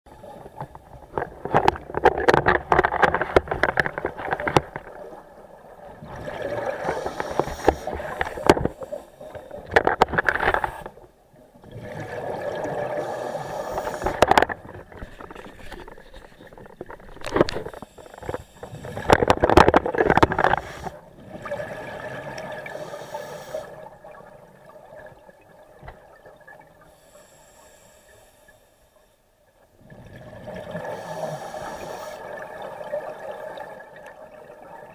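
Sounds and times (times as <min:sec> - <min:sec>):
exhaled bubbles gurgling: 0:00.1 - 0:26.8, 0:29.8 - 0:34.9
regulator breaths hissing: 0:06.8 - 0:09.4, 0:12.9 - 0:14.2, 0:17.7 - 0:19.1, 0:22.6 - 0:23.8, 0:26.9 - 0:29.2, 0:30.9 - 0:32.4.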